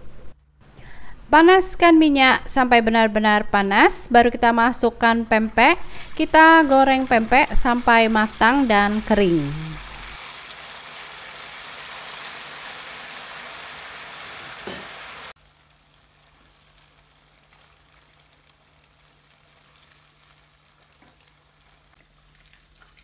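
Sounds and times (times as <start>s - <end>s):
fish cakes sizzling in oil: 5.6s - 23.0s.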